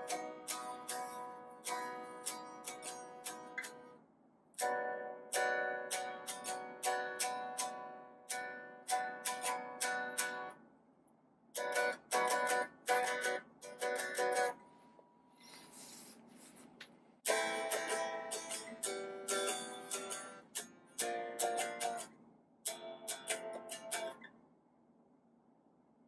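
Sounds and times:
electric guitar strumming chords: 0:00.0 - 0:04.0, 0:04.6 - 0:10.5, 0:11.6 - 0:14.6, 0:17.3 - 0:22.1, 0:22.7 - 0:24.2.

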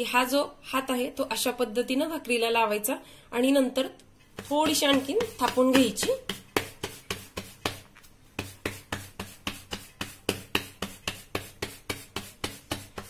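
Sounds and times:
dough patted by hand: 0:04.3 - 0:13.0.

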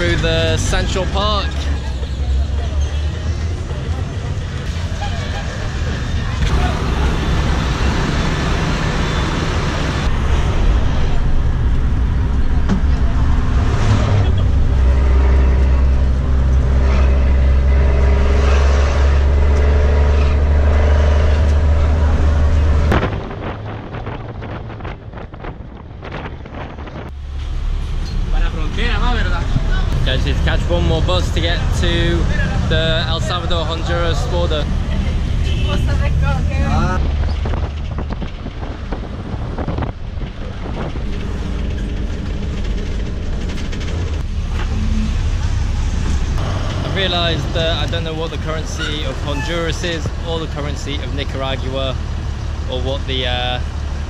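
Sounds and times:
bus engine drone: 0:00.0 - 0:54.0
road noise: 0:00.0 - 0:54.0
wind noise: 0:20.5 - 0:28.3, 0:34.1 - 0:49.4
rattles and clicks: 0:37.0 - 0:48.8.

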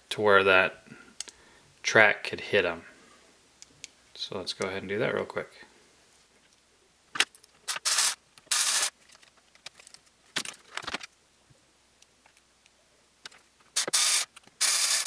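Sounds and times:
electric screwdriver driving screws: 0:07.7 - 0:08.9, 0:13.8 - 0:15.0.

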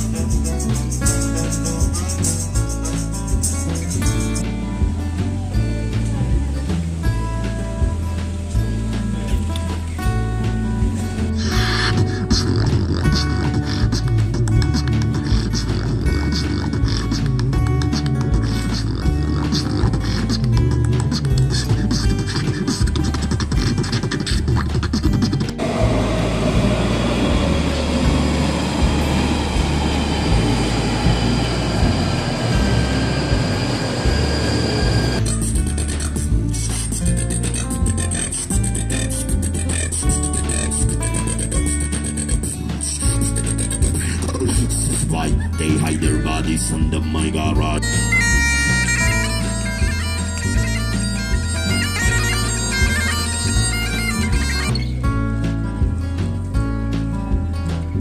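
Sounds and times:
faint high whine: 0:25.6 - 0:35.2
train wheels rumbling on rail: 0:25.6 - 0:35.2
bagpipes playing a melody: 0:25.6 - 0:35.3, 0:47.7 - 0:55.0.

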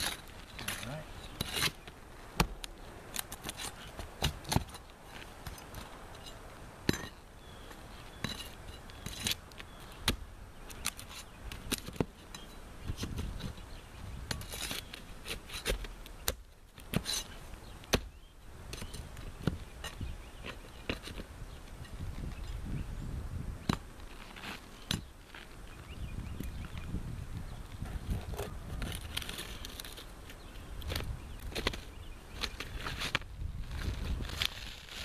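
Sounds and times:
hand tools scraping shingles: 0:00.0 - 0:02.5, 0:03.1 - 0:07.2, 0:14.3 - 0:18.1.

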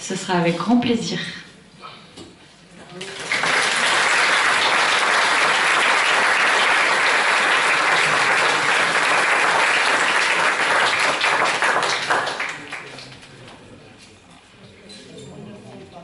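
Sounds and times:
audience applauding: 0:03.0 - 0:13.3.

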